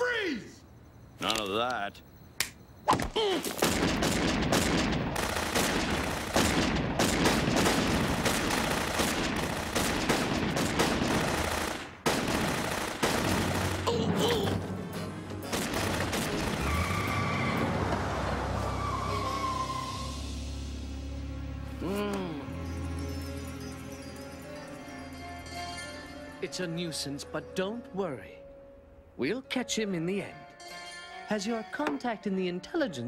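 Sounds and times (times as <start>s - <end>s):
rapid gunshots: 3.6s - 14.1s, 15.5s - 16.7s
music: 13.3s - 16.7s, 18.5s - 33.0s.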